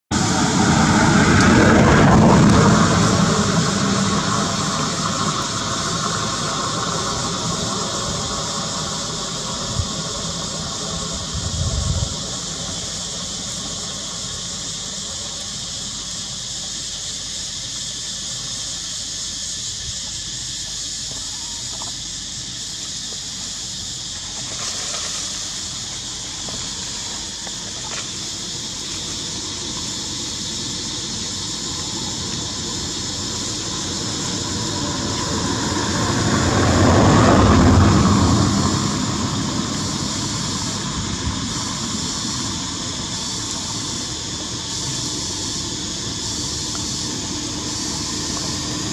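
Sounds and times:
low rumble: 0.1s - 15.8s
high-pitched insect drone: 0.1s - 48.9s.

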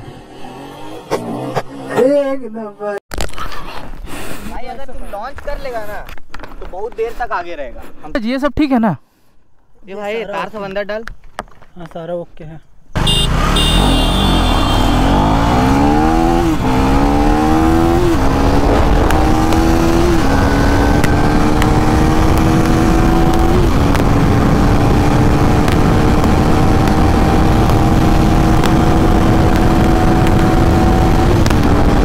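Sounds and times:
motorcycle engine accelerating: 13.0s - 32.0s
wind rush over microphone: 17.6s - 32.0s.

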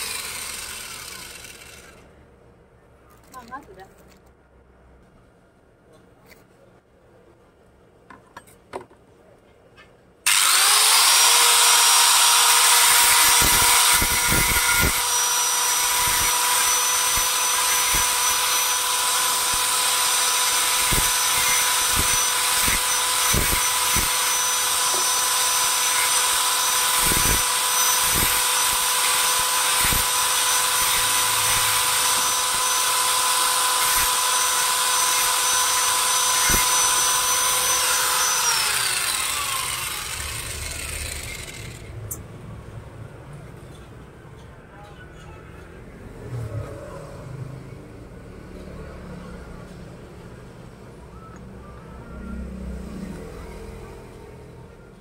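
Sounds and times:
angle grinder grinding metal: 0.0s - 2.0s, 10.3s - 41.9s.

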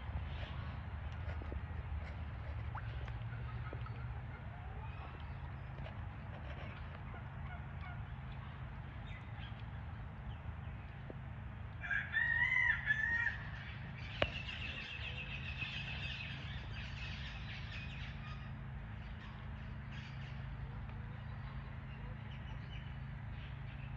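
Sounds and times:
steady low hum: 0.0s - 11.8s
rooster crowing: 11.8s - 13.5s.

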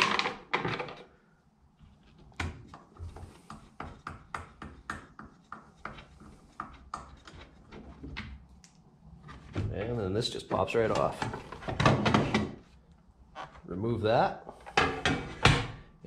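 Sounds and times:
hand screws clicking and knocking: 2.1s - 8.4s.

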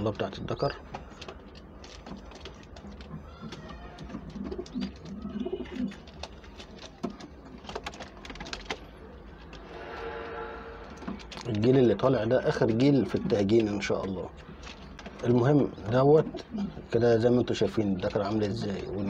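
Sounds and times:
pigeons cooing: 3.2s - 6.1s, 15.7s - 16.9s.

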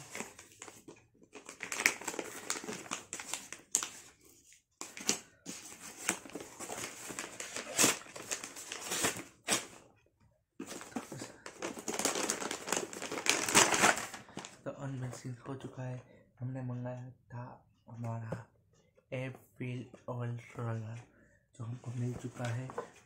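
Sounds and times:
paper and plastic crinkling: 0.0s - 9.8s, 10.6s - 15.2s, 21.9s - 23.0s.

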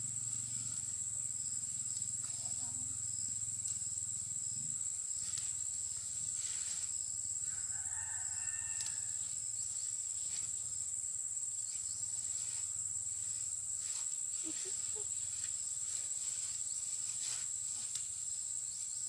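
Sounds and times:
high-pitched insect drone: 0.0s - 19.0s
rooster crowing: 7.4s - 9.4s
leaves rustling and snapping: 8.6s - 9.0s, 17.2s - 18.2s.

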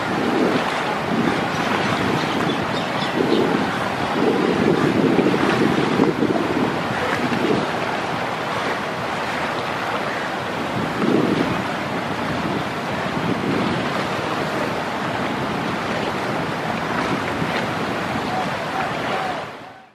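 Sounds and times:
wind buffeting microphone: 0.0s - 19.8s
river water rushing and splashing: 0.0s - 19.9s.

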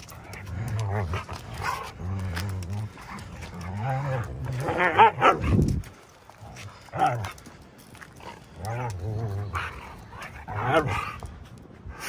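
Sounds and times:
dog growling playfully: 0.0s - 5.8s.

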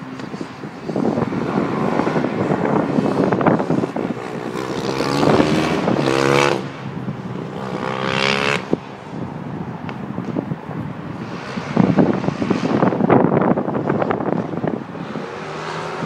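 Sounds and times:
kart engine accelerating: 1.5s - 6.8s.

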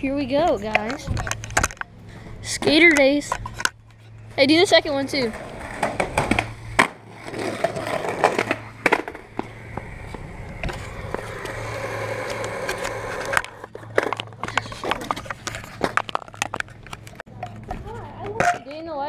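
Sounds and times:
skateboard wheels rolling on concrete: 0.0s - 19.0s
skateboard clacks: 5.2s - 18.8s.

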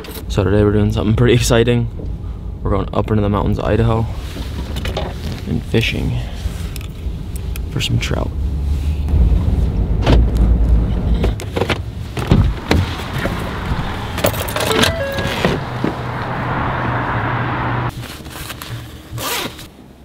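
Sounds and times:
engine and road rumble: 0.0s - 20.0s
truck door clicks and knocks: 11.3s - 13.4s.

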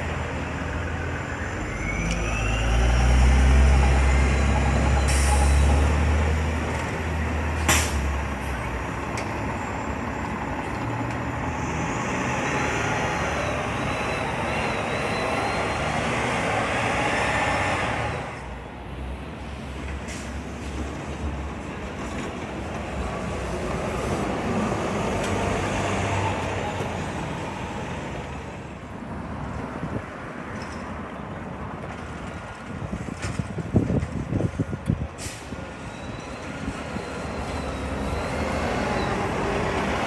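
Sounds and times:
bus engine whine: 0.0s - 40.0s
diesel bus engine rumble: 0.0s - 40.0s
air brakes hissing: 5.0s - 5.8s, 7.6s - 8.1s, 20.0s - 20.5s, 35.2s - 36.4s.

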